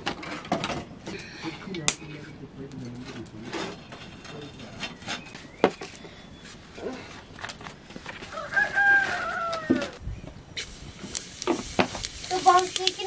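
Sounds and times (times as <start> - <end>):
rooster crowing: 8.2 - 10.0.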